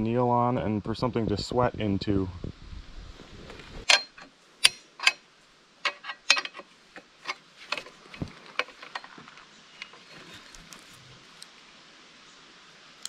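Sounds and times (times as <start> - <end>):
metal clicks and clacks: 3.9 - 5.2, 5.8 - 9.2.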